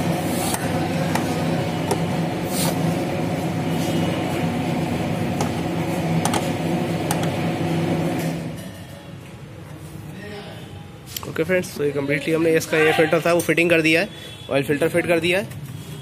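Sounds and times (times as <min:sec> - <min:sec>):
low mechanical drone: 0:00.0 - 0:08.6.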